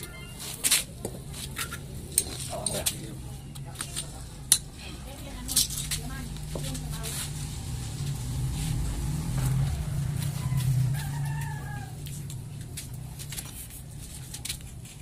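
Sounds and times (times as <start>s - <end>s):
rooster crowing: 10.0s - 12.3s.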